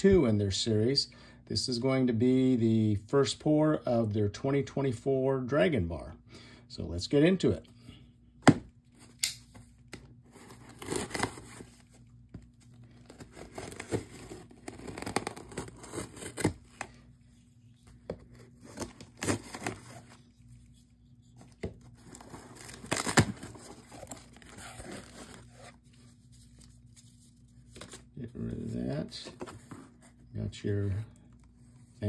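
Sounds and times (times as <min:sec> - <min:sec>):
knife slitting packing tape: 0:13.3 - 0:16.6.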